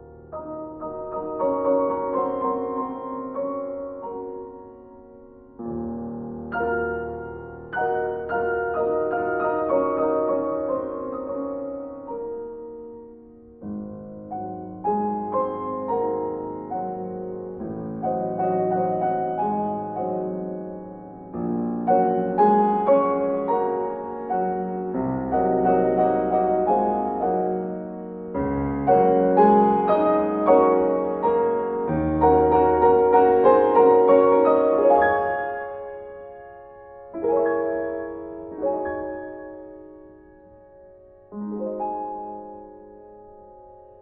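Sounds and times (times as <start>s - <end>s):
piano music: 0.0s - 44.0s.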